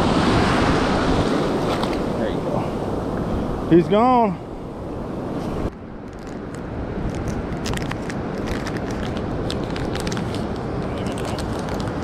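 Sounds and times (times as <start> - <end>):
wind on microphone: 0.0 - 12.0
plastic packet crackling: 7.1 - 12.0.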